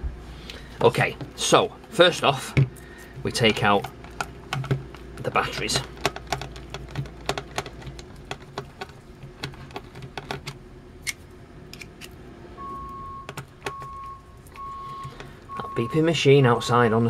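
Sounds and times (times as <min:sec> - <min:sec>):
small plastic clicks and rattles: 0:03.4 - 0:10.6
reversing alarm beeping: 0:12.6 - 0:16.9.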